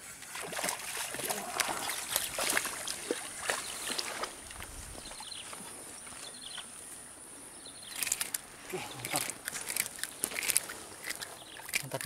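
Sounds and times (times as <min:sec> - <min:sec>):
fish thrashing and splashing: 0:00.2 - 0:05.6.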